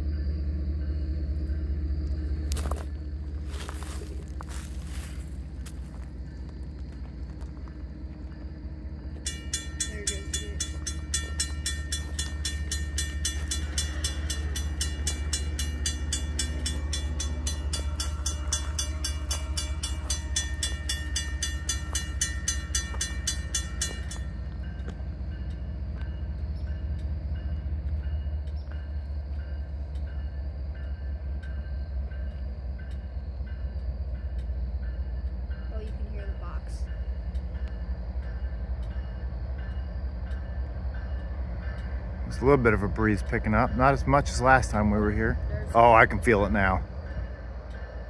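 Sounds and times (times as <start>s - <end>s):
diesel locomotive rumble in tunnel: 0.0s - 48.0s
crossing warning bell ringing: 7.4s - 48.0s
faint slow bell ringing: 8.2s - 42.8s.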